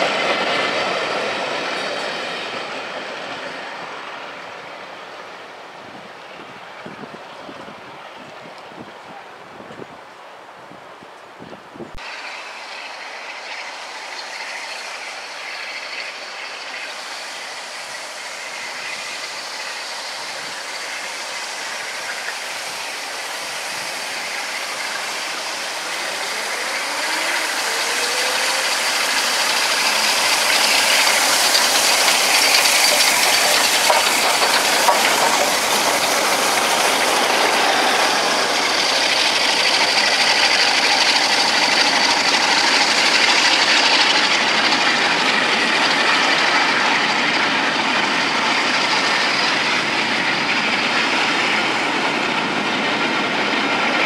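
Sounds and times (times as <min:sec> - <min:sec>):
coaches rolling on rails: 0:00.0 - 0:54.0
steam locomotive hauling train: 0:00.0 - 0:54.0.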